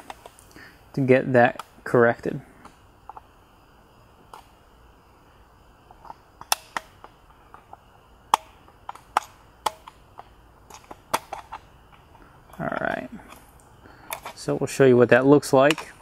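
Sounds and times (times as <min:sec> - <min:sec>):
plastic clicks and snaps: 0:05.9 - 0:12.6, 0:15.7 - 0:16.0.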